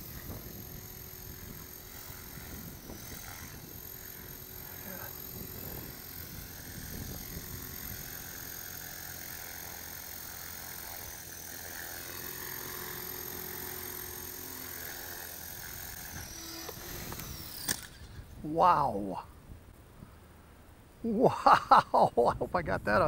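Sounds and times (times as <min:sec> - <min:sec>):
rc helicopter motor whine: 0:00.0 - 0:18.3
rotor blades whirring: 0:00.0 - 0:18.3.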